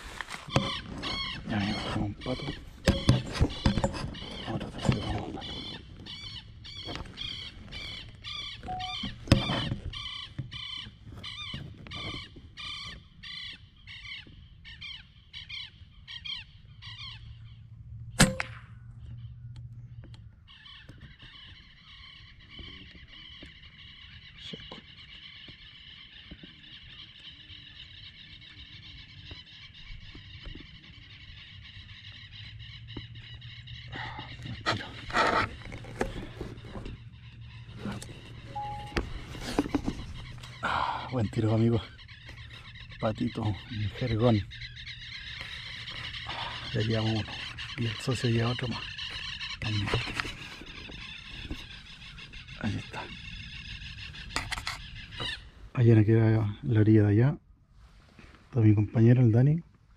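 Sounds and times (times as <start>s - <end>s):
bird calling: 0.0s - 59.9s
wavering high-pitched calling: 8.3s - 9.6s, 38.4s - 39.6s.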